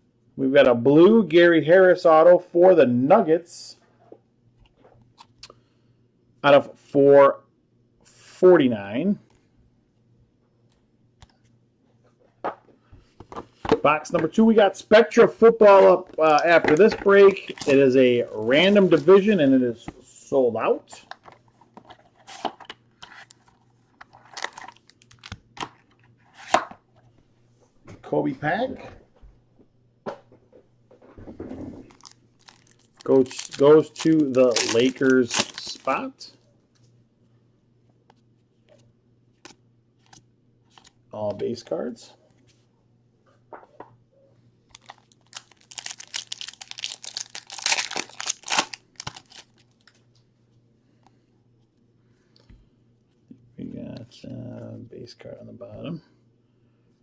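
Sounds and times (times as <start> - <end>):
foil and plastic wrapping crinkling: 24.1 - 25.4, 31.8 - 36.1, 44.7 - 50.0.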